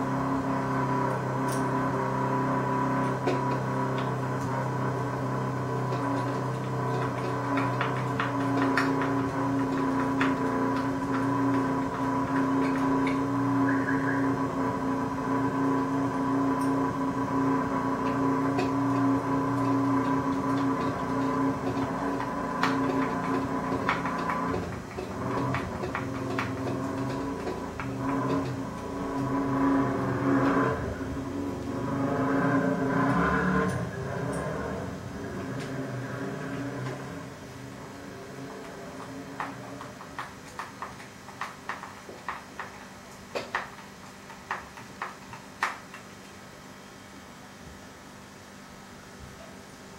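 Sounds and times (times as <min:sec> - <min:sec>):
electric motor whine: 0:00.0 - 0:40.3
low steady hum: 0:00.0 - 0:49.9
small clicks and taps: 0:05.8 - 0:14.1, 0:18.0 - 0:29.4, 0:38.6 - 0:46.4
clicks and taps on plastic: 0:39.0 - 0:46.1.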